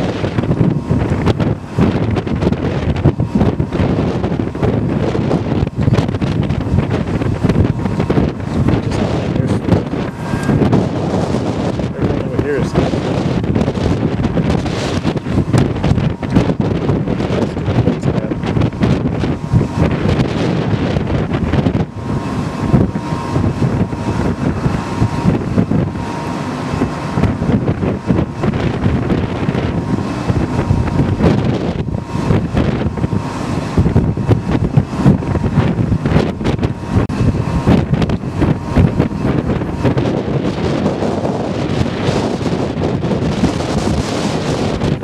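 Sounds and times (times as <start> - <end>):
faint steady whine: 0.0 - 45.0
wind buffeting microphone: 0.0 - 45.0.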